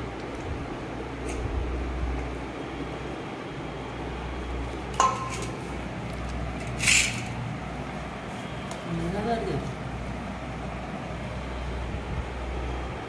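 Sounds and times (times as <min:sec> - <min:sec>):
steady low hum: 0:00.0 - 0:13.0
spoon clinking on steel pan: 0:05.0 - 0:05.4.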